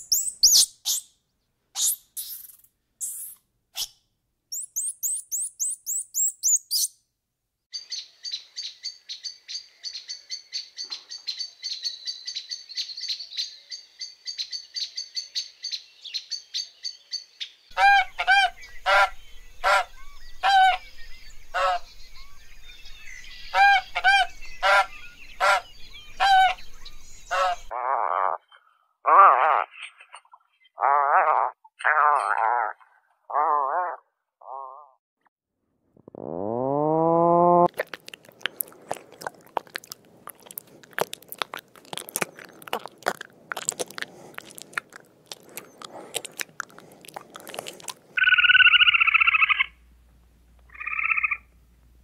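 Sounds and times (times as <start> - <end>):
high bird chirps and trills: 0.0 - 1.2, 1.8 - 7.0, 7.7 - 27.7, 48.2 - 49.8
loud repeated bird calls: 0.0 - 1.2, 1.8 - 6.9, 7.7 - 35.0, 48.2 - 49.8, 50.7 - 51.5.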